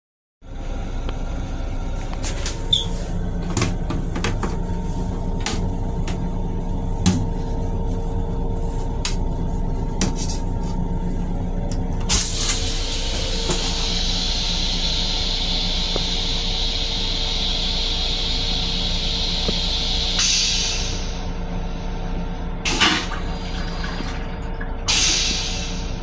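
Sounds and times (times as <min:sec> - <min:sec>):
railcar hum: 0:00.4 - 0:26.0
loud hiss: 0:12.1 - 0:21.2.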